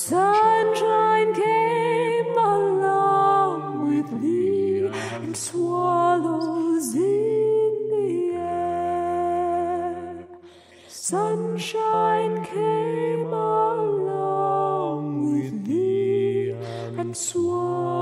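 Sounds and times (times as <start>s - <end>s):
woman singing slowly: 0.0s - 10.2s, 16.6s - 18.0s.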